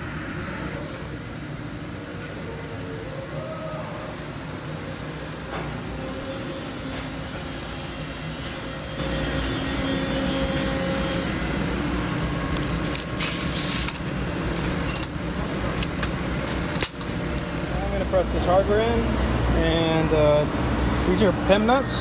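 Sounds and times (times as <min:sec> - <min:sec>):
shop machinery hum: 0:00.0 - 0:22.0
tape peeling off metal: 0:09.1 - 0:11.6, 0:12.5 - 0:17.5.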